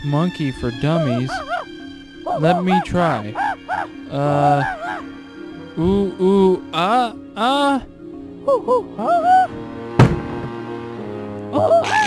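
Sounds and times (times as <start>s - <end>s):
background music: 0.0s - 12.0s
person hooting like a monkey: 1.0s - 1.7s, 2.3s - 5.1s, 8.4s - 9.5s, 11.6s - 12.0s.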